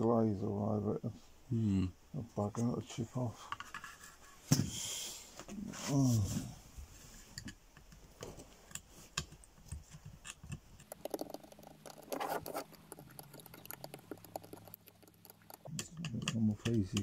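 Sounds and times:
faint low hum: 0:00.0 - 0:17.0
screwdriver scraping circuit board: 0:10.3 - 0:13.1.

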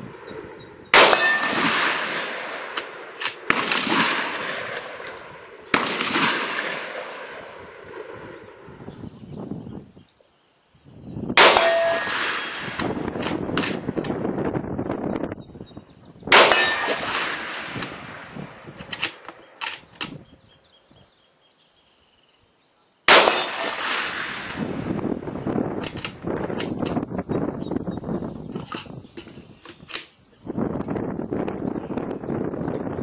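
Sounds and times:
rifle shots with echo: 0:00.1 - 0:08.8, 0:11.4 - 0:14.2, 0:16.3 - 0:20.1, 0:23.1 - 0:25.0
rifle bolt clicking: 0:02.6 - 0:03.9, 0:18.8 - 0:20.2, 0:25.8 - 0:27.0, 0:28.6 - 0:30.2.

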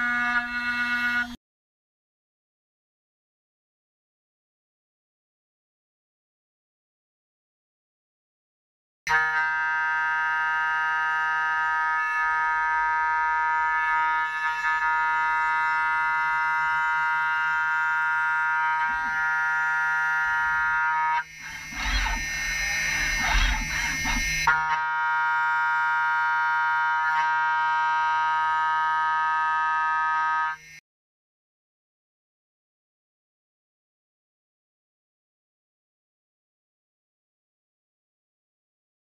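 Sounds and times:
milling cutter high-pitched whine: 0:00.0 - 0:01.4, 0:11.6 - 0:30.8
rough cutting sound with rumble: 0:18.7 - 0:24.8.

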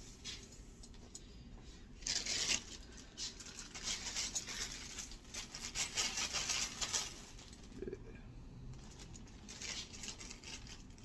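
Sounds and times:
plastic bag crinkling: 0:02.0 - 0:07.9, 0:08.8 - 0:11.0.

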